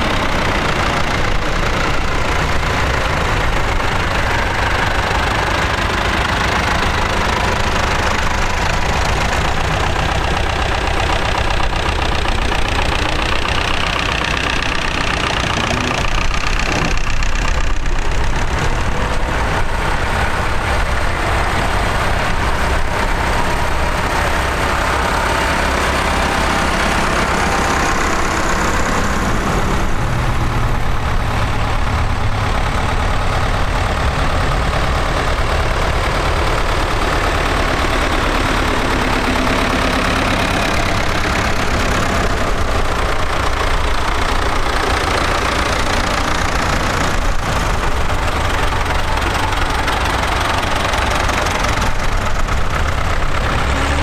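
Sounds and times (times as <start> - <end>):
tractor diesel engines passing: 0.0 - 54.0.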